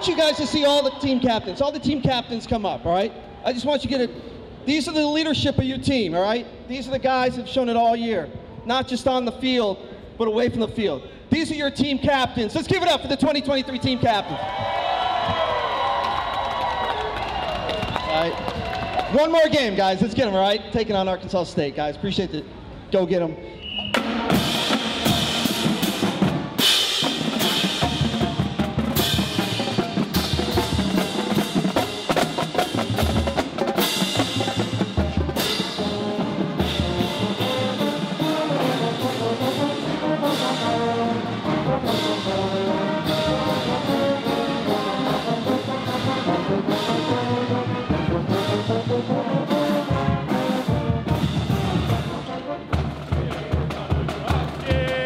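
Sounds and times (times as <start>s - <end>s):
drumline beating: 14.1s - 19.8s, 23.9s - 55.0s
brass playing tune: 27.4s - 53.2s.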